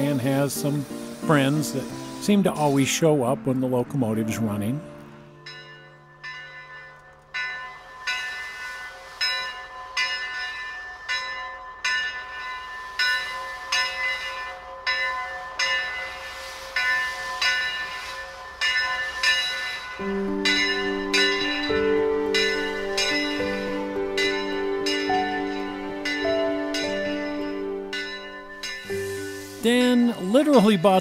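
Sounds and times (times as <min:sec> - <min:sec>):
steam locomotive bell ringing: 0:00.0 - 0:31.0.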